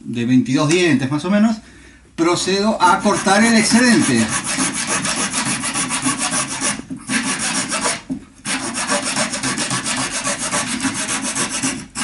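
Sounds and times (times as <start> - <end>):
hacksaw sawing wooden dowel: 2.8 - 12.0.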